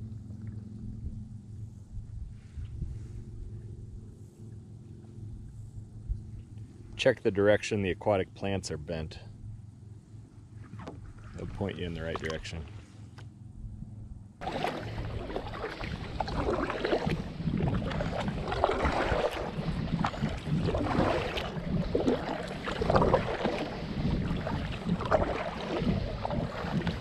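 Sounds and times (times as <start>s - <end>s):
kayak paddle splashing: 10.5s - 13.2s, 14.4s - 27.0s
water washing along hull: 10.6s - 12.7s, 14.4s - 27.0s.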